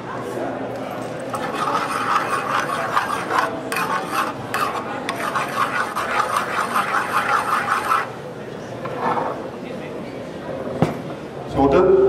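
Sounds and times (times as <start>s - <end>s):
metal spoon scraping a skillet: 1.3s - 8.1s.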